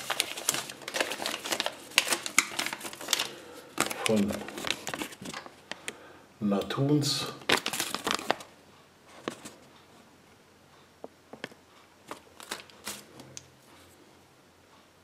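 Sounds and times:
paper leaflet rustling: 0:00.0 - 0:05.9, 0:07.4 - 0:08.5, 0:09.1 - 0:09.7, 0:11.4 - 0:13.4.

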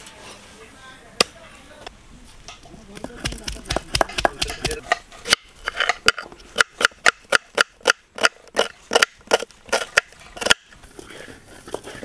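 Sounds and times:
knife chopping food: 0:03.2 - 0:04.8.

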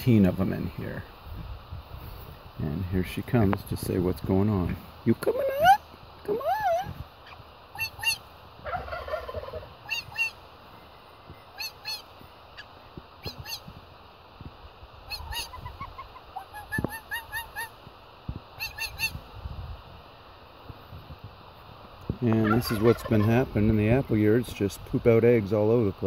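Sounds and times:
duck calling with squeaky notes: 0:05.4 - 0:10.4, 0:11.4 - 0:13.8, 0:15.0 - 0:17.8, 0:18.6 - 0:19.2.

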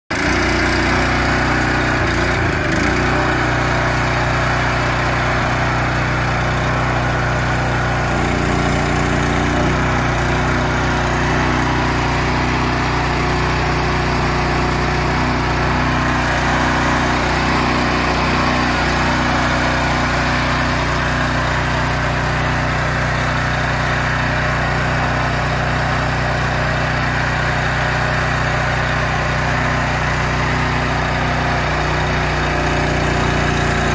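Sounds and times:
small gasoline engine running: 0:00.1 - 0:33.9.

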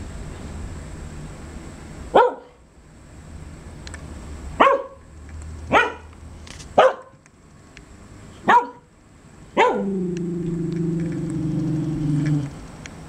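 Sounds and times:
dog barking: 0:02.1 - 0:02.6, 0:04.6 - 0:05.0, 0:05.7 - 0:06.1, 0:06.8 - 0:07.2, 0:08.4 - 0:08.9, 0:09.6 - 0:10.0.

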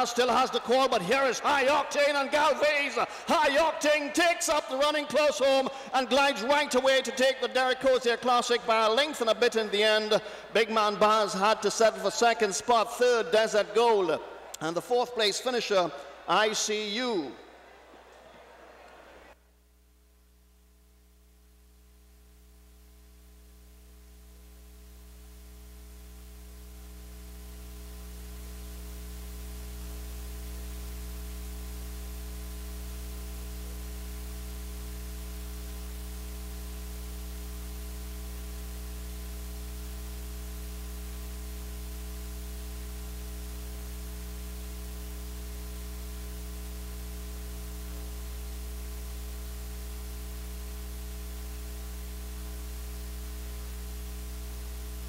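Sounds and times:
electrical mains hum with hiss: 0:18.9 - 0:55.0.

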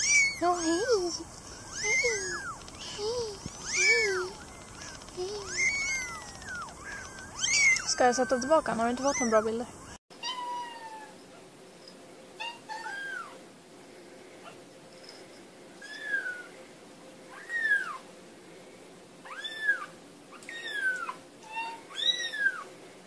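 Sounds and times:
kittens mewing: 0:00.0 - 0:11.0.

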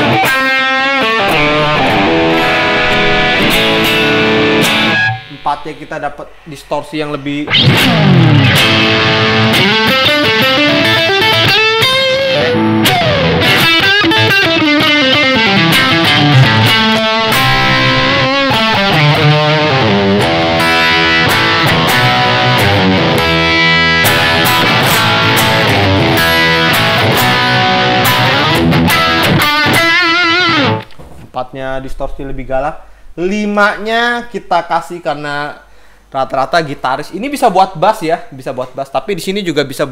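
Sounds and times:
distorted electric guitar lead: 0:00.0 - 0:06.0, 0:07.4 - 0:31.0.

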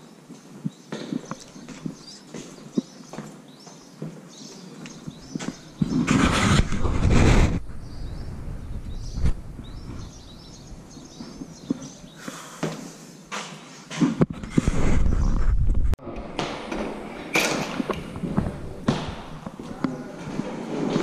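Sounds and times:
footsteps: 0:00.2 - 0:07.9, 0:08.8 - 0:21.0
low rumble on microphone: 0:05.8 - 0:11.7, 0:14.4 - 0:16.0.

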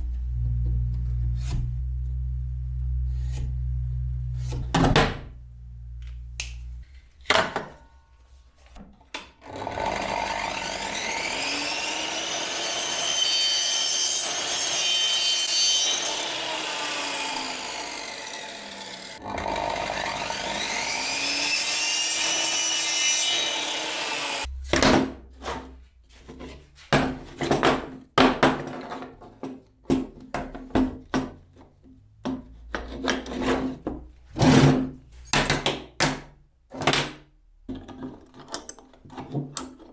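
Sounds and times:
miter saw cutting panel: 0:00.3 - 0:05.4, 0:09.4 - 0:24.5.

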